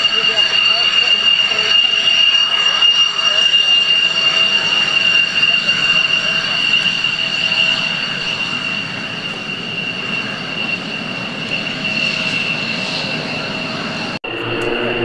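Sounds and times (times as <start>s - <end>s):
jet engine whine: 0.0s - 15.0s
propeller aircraft drone: 0.0s - 15.0s.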